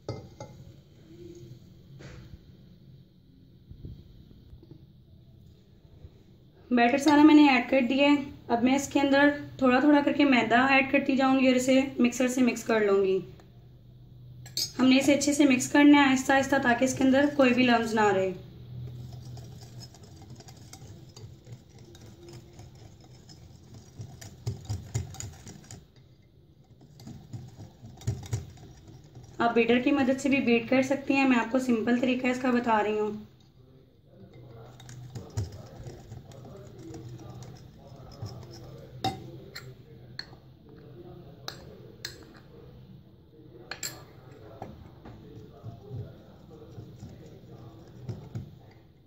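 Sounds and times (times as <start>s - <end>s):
whisk clicking against glass bowl: 18.9s - 29.4s, 45.3s - 48.5s.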